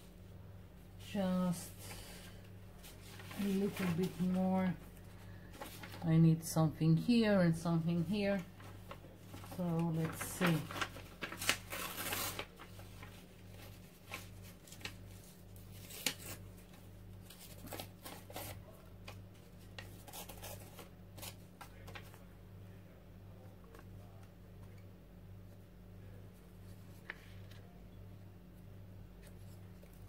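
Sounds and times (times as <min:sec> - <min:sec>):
faint low hum: 0:00.0 - 0:30.0
paper crinkling: 0:02.8 - 0:06.4, 0:07.6 - 0:22.2, 0:26.4 - 0:27.7
paper tearing: 0:09.4 - 0:13.1.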